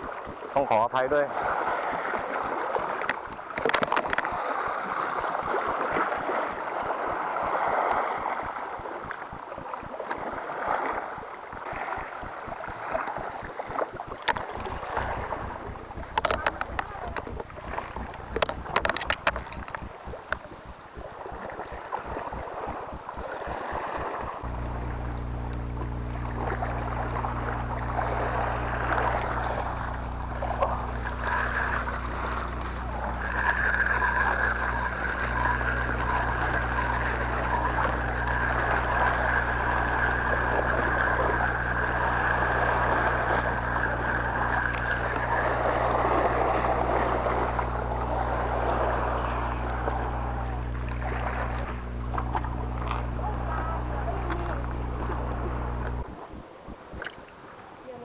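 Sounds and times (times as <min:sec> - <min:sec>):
thin high whine: 0:00.0 - 0:57.2
sea noise: 0:00.0 - 0:58.0
steady low hum: 0:00.0 - 0:58.0
wind: 0:00.0 - 0:58.0
fishing reel winding: 0:12.0 - 0:22.4, 0:26.6 - 0:53.0.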